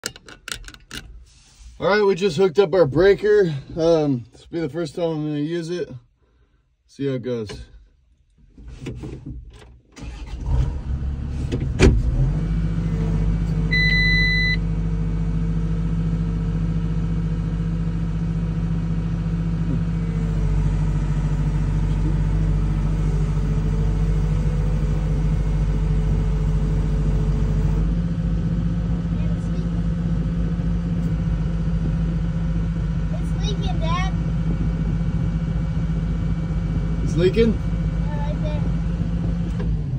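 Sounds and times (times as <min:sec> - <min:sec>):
clicks and knock: 0:00.0 - 0:01.1
diesel engine starting and running: 0:08.7 - 0:39.9
short electronic beep: 0:13.7 - 0:14.7.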